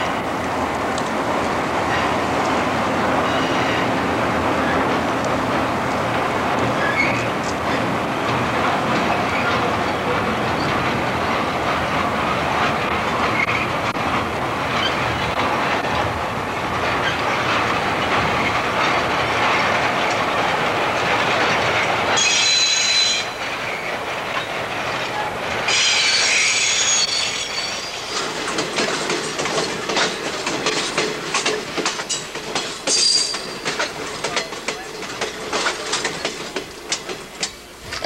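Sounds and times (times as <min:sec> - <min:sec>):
train wheels rumbling on rail: 0:00.0 - 0:38.0
wheels clickety-clack over rail joints: 0:00.0 - 0:38.0
metallic wheel squeal: 0:22.2 - 0:23.4, 0:25.7 - 0:28.2.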